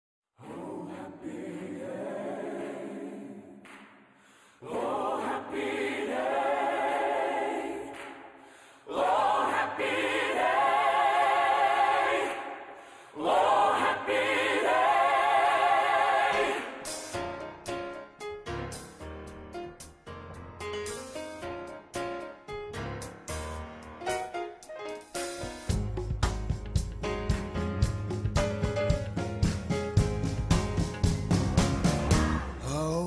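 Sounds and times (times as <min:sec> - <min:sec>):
gospel choir singing: 0:00.4 - 0:17.6, 0:31.6 - 0:32.9.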